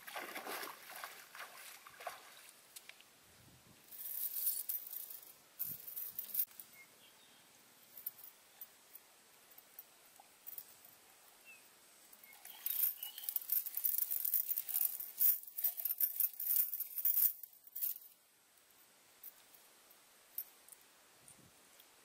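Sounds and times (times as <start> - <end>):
chain rattling and clinking: 3.9 - 6.5, 12.2 - 18.1.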